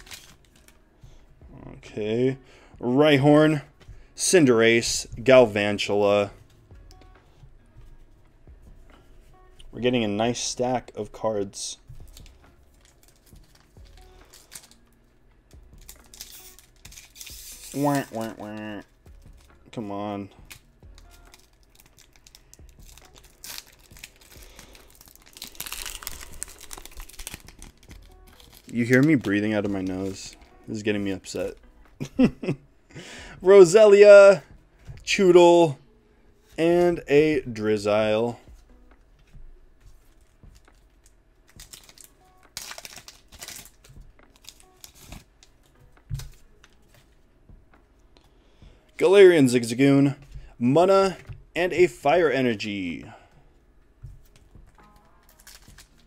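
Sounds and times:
wrapper crinkling and tearing: 0:00.0 - 0:00.8, 0:12.0 - 0:14.9, 0:15.8 - 0:19.5, 0:20.4 - 0:31.6, 0:41.5 - 0:47.0, 0:54.7 - 0:56.0.

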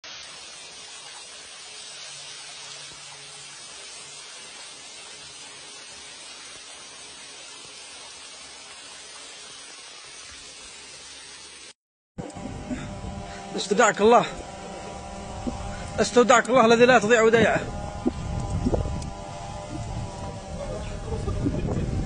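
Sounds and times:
steady hiss: 0:00.0 - 0:11.7.

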